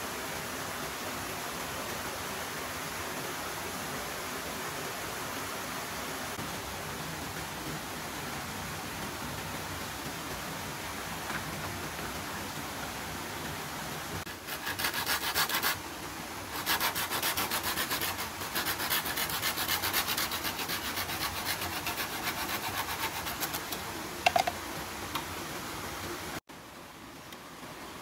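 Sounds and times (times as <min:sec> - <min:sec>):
hand saw cutting bamboo: 0:14.3 - 0:15.8, 0:16.5 - 0:23.8.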